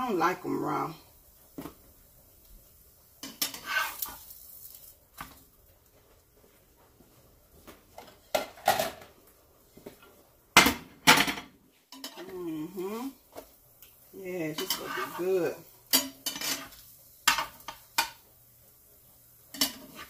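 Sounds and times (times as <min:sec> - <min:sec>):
spatula against frying pan: 0:03.2 - 0:04.3, 0:14.5 - 0:18.2, 0:19.5 - 0:20.0.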